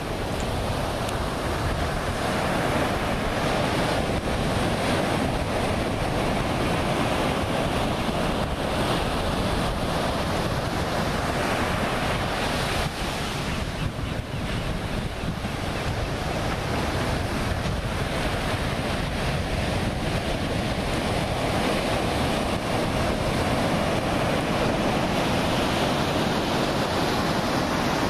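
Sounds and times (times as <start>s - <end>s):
ocean surf breaking: 0.0s - 28.0s
wind rumbling on microphone: 0.0s - 28.0s.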